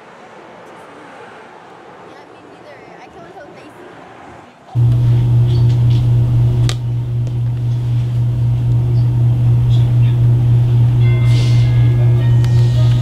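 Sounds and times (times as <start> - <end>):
loud steady low hum: 4.8 - 13.0.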